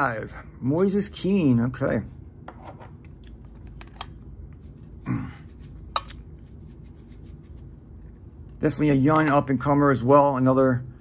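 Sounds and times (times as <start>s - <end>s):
short low hum-like voice: 5.0s - 5.6s.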